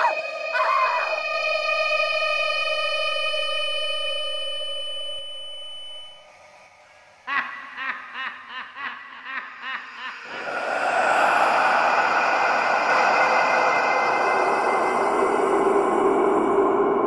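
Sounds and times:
sustained eerie tone: 0.0 - 6.8, 10.1 - 17.0
ghostly snickering laugh: 7.2 - 11.6.

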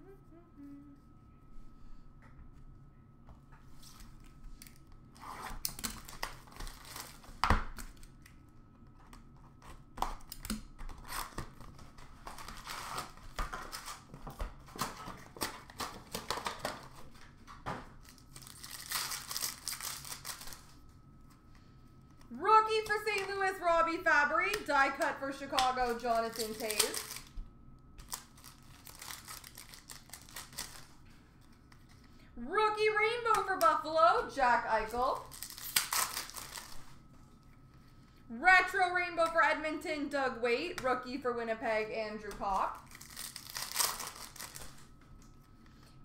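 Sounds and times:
card wrappers tearing and crinkling: 3.8 - 8.4, 9.5 - 17.2, 17.9 - 20.8, 24.4 - 27.4, 28.0 - 32.0, 34.9 - 37.0, 42.6 - 45.0.

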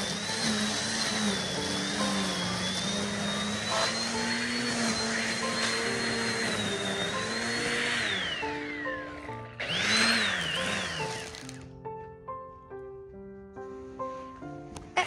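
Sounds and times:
electric trimmer motor whining: 0.0 - 11.8
gentle melodic background music: 0.0 - 15.0.

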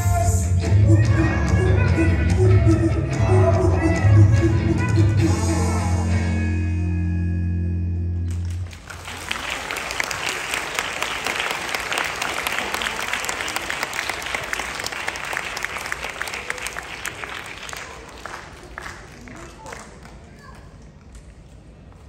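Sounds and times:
audience applauding: 8.3 - 20.7.

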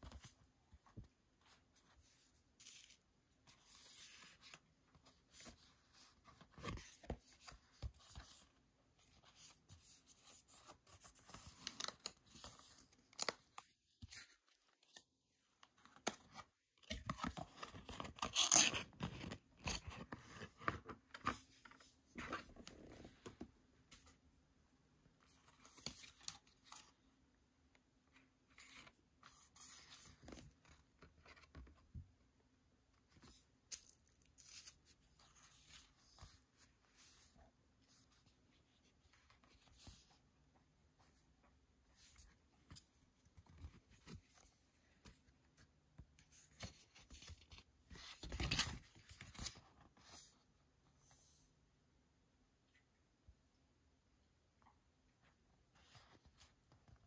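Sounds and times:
paper cards rustling and sliding: 46.2 - 50.3.

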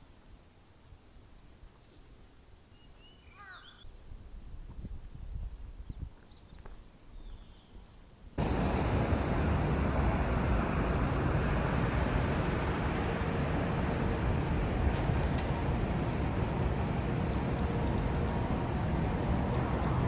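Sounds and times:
faint low rumble: 4.0 - 20.0
outdoor rushing noise: 8.4 - 20.0.

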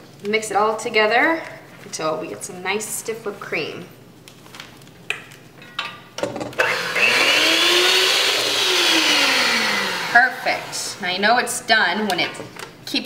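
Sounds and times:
electric hand mixer whirring: 6.6 - 11.0.

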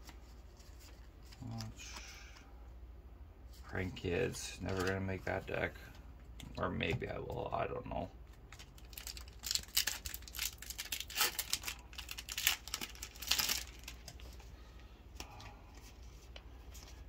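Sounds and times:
cards rustling: 0.0 - 2.4, 3.8 - 5.5, 8.3 - 17.0
foil wrapper crinkling and tearing: 8.5 - 14.4.

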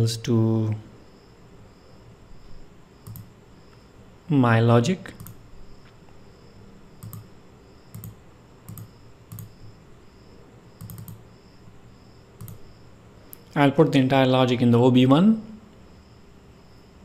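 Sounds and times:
computer mouse clicks: 3.0 - 3.8, 5.1 - 6.0, 7.0 - 7.3, 7.9 - 9.6, 10.8 - 11.2, 12.4 - 12.7.

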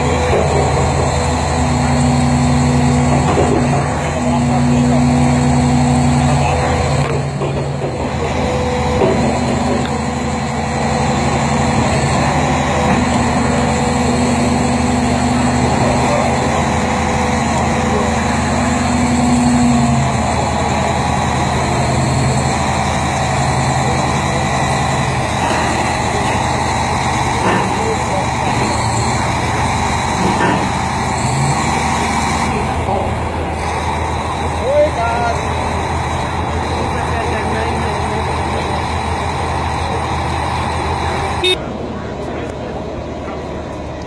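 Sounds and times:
loud diesel engine running: 0.0 - 44.0.

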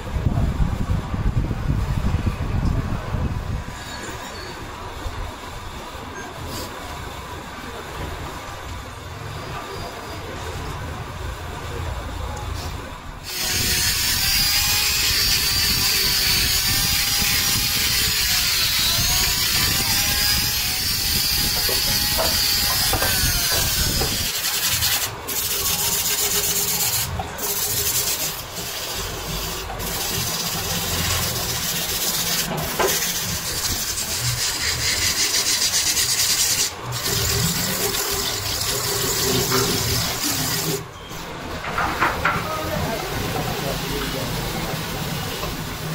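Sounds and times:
lathe running: 13.2 - 40.8
sandpaper rasping on spinning wood: 13.2 - 40.8.

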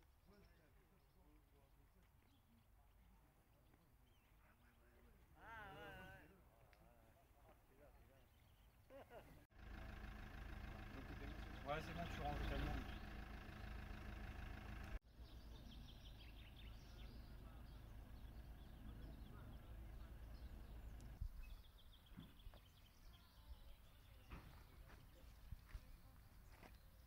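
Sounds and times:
small birds chirping: 7.8 - 8.9, 9.7 - 27.0
van engine idling: 9.5 - 21.2.

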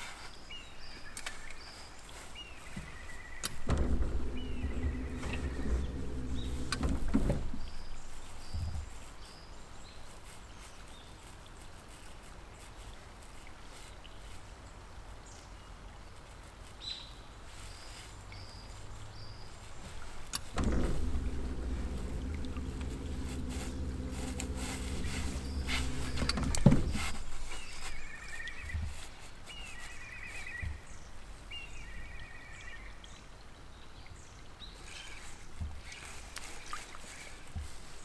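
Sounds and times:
electric boat motor humming: 3.4 - 8.4, 20.0 - 28.2
small birds chirping: 21.2 - 38.0.

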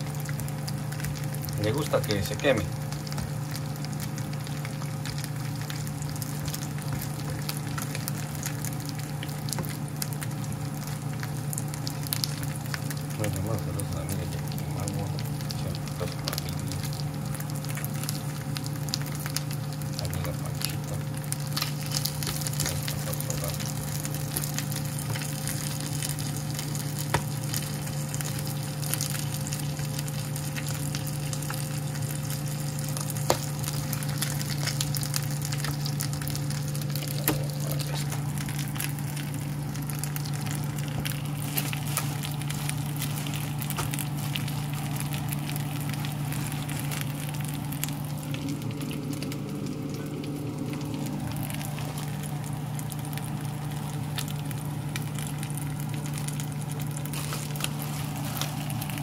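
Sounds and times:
chicken sizzling in a pan: 0.0 - 59.0
steady low hum: 0.0 - 59.0
fat popping: 20.6 - 27.8, 33.1 - 34.9, 36.8 - 39.0, 40.0 - 47.9.

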